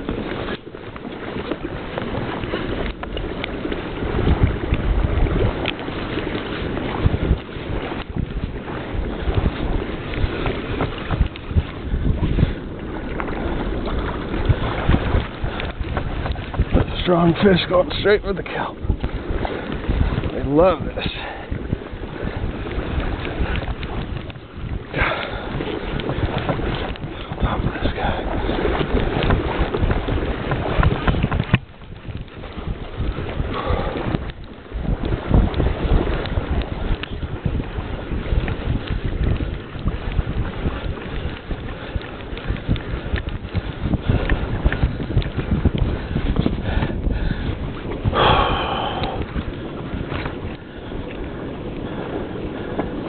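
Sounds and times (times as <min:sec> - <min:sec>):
water sloshing around kayak: 0:00.0 - 0:53.0
wind buffeting microphone: 0:00.0 - 0:53.0
knocks against hull: 0:25.0 - 0:32.7.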